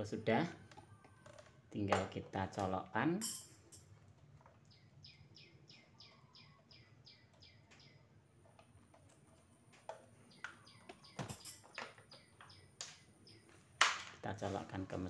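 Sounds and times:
small bird chirping: 4.5 - 8.6, 10.0 - 13.6.

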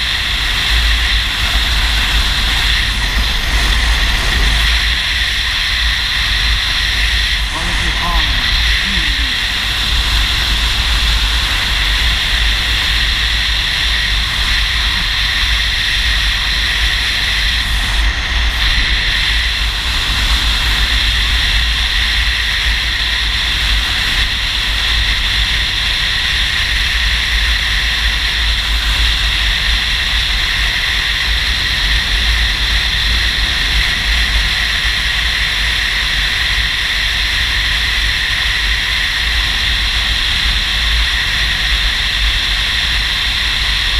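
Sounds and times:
motorcycle rumble: 0.0 - 22.6.

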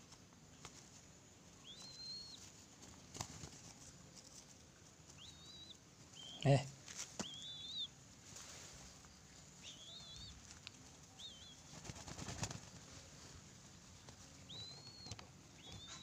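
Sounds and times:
dove wings flapping: 2.8 - 3.9, 11.6 - 13.0.

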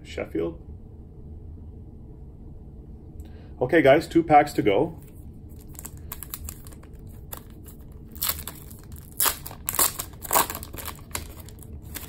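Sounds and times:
foil wrapper tearing and crinkling: 5.5 - 12.0.

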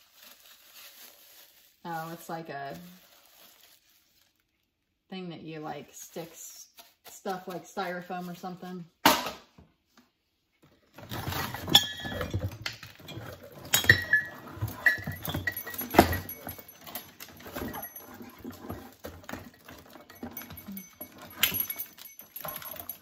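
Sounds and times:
rummaging through string lights: 10.7 - 23.0.

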